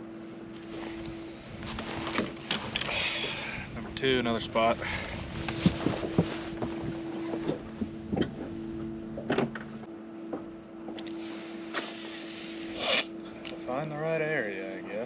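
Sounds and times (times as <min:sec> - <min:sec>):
electric trolling motor humming: 0:00.0 - 0:15.0
knocks and clicks on boat deck: 0:05.4 - 0:11.2.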